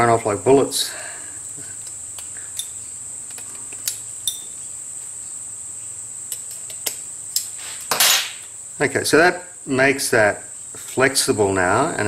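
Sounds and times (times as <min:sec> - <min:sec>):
steady high-pitched whine: 0:00.0 - 0:12.0.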